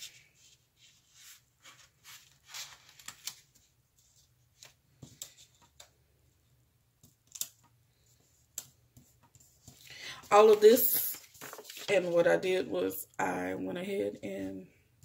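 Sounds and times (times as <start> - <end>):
paper rustling: 0.0 - 5.8, 9.0 - 12.7.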